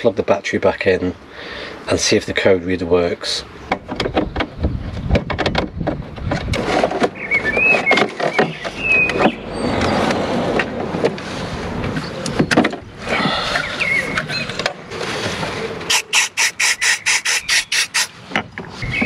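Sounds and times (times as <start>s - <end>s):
aerosol spray hissing: 15.9s - 18.1s.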